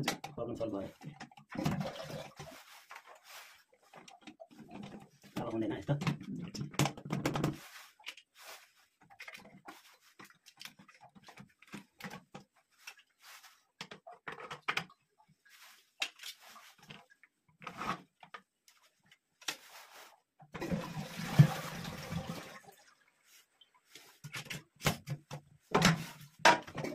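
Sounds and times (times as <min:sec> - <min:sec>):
plastic parts clicking and knocking: 0:00.0 - 0:01.8, 0:04.0 - 0:08.3, 0:10.2 - 0:13.0, 0:13.7 - 0:15.1, 0:24.2 - 0:26.9
toilet flushing water: 0:01.6 - 0:02.7, 0:20.6 - 0:22.9.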